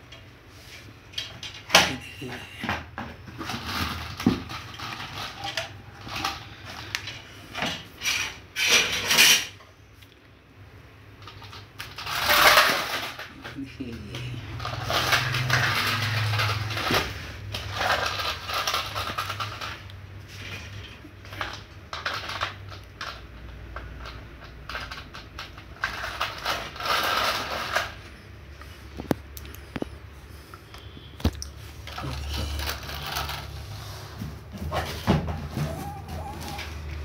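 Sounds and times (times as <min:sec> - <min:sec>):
toy tractor rattling on concrete: 0:03.2 - 0:09.6, 0:11.2 - 0:28.2, 0:31.8 - 0:33.8.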